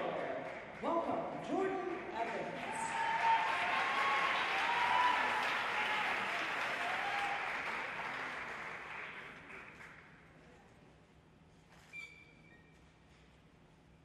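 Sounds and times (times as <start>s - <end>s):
audience applauding and cheering: 1.9s - 10.1s.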